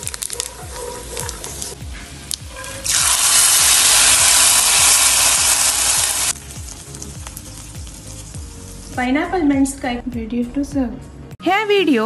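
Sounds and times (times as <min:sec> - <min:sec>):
hot oil sizzling in curry: 0:00.0 - 0:09.0.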